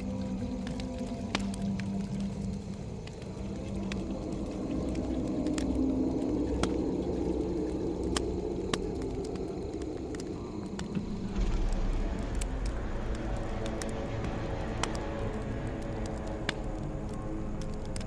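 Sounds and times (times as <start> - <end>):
fire crackling and popping: 0.0 - 18.0.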